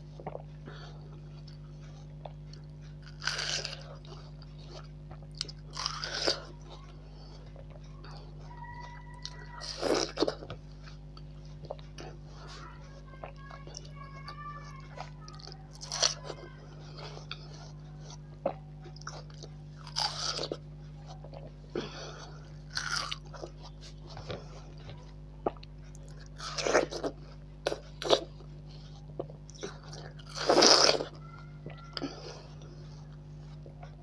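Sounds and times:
chewing: 0.0s - 34.0s
steady low hum: 0.0s - 34.0s
watermelon crunching bites: 2.2s - 12.2s, 14.7s - 24.8s, 25.4s - 31.8s.

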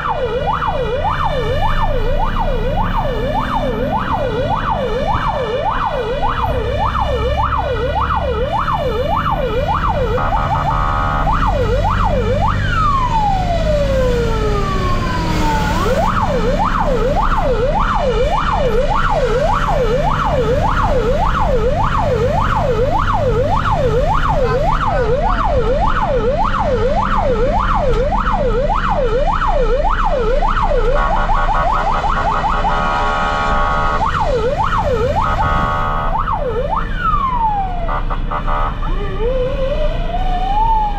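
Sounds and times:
engine rumble: 0.0s - 32.8s
fire engine siren yelping: 0.0s - 40.9s.

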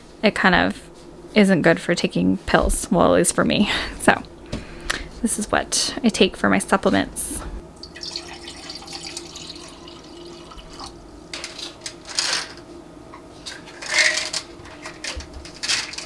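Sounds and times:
water pouring into a glass: 7.8s - 10.9s.

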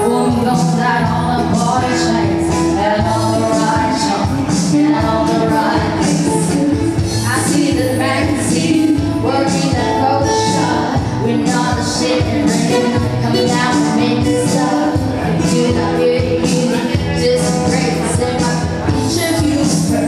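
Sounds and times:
amplified acoustic guitar: 0.0s - 20.0s
woman singing into microphone: 0.0s - 20.0s.

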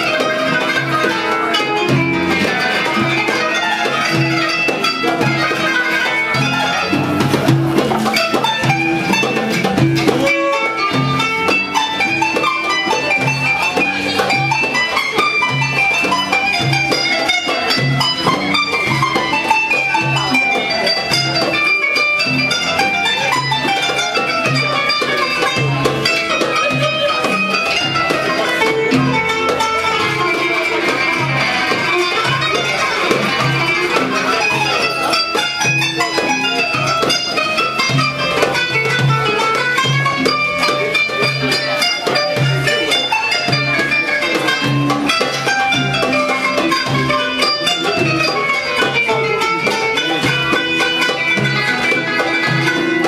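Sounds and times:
hand drums beating: 0.0s - 53.0s
oud and kanun playing: 0.0s - 53.0s.

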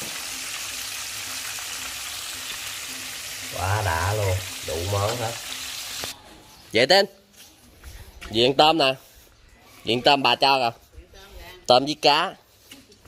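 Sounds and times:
food sizzling in hot oil: 0.0s - 6.2s.

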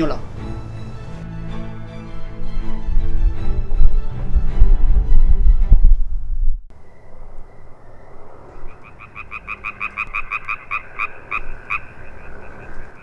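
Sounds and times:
frogs croaking: 6.7s - 13.0s.

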